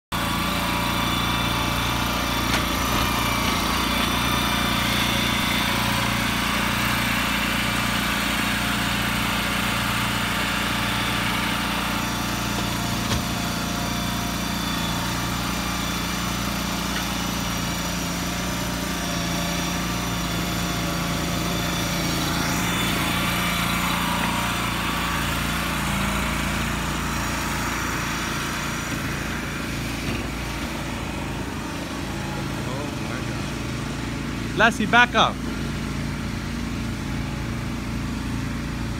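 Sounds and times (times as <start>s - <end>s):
small engine running under load: 0.1s - 38.9s.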